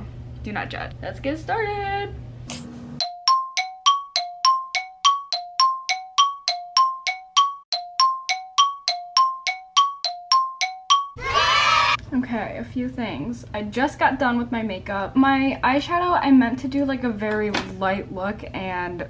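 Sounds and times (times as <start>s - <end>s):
ticking clock sound effect: 3.0s - 11.2s.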